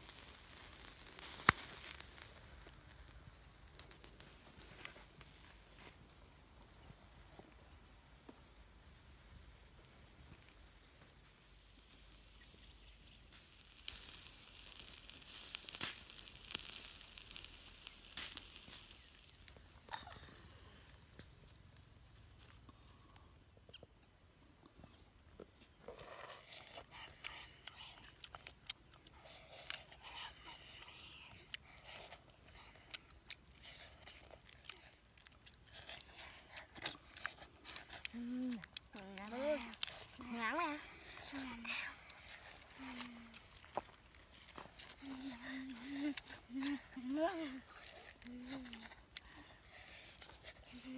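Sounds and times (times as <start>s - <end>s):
duck sizzling over charcoal: 0.0s - 23.4s, 26.0s - 50.9s
sharp crackles and pops: 0.0s - 50.9s
chewing: 24.6s - 50.9s.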